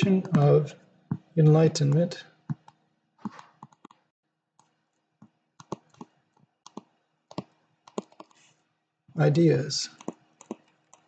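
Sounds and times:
stylus tapping on tablet screen: 0:02.5 - 0:04.0, 0:04.6 - 0:08.4, 0:10.0 - 0:11.0.

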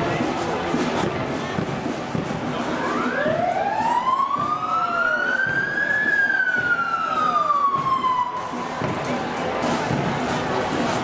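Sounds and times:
emergency siren wailing: 0:02.6 - 0:09.0.

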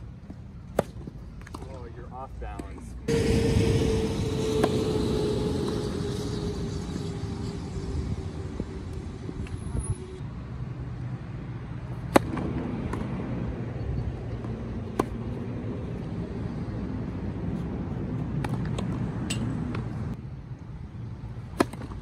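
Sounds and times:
low rumble: 0:03.0 - 0:10.2.

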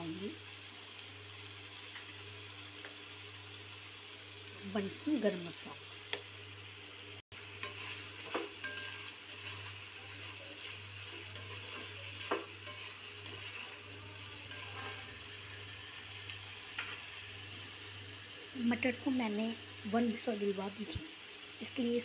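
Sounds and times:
sizzling in a metal pan: 0:00.0 - 0:22.0
spoon scraping a pan: 0:07.5 - 0:17.2.

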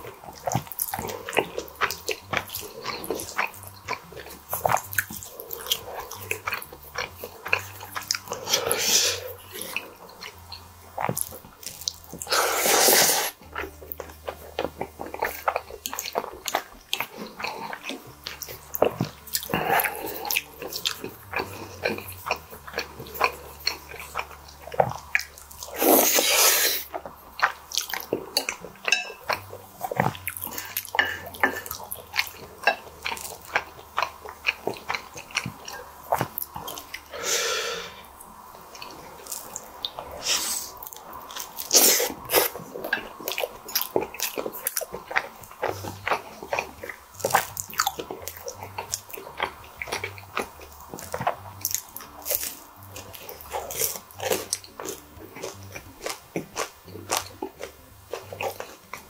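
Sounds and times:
wet chewing: 0:00.0 - 0:59.0.

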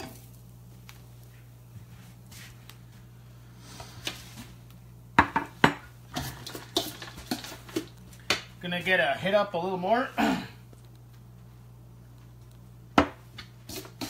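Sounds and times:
steady low hum: 0:00.0 - 0:14.0
kitchenware clattering: 0:05.2 - 0:07.9.

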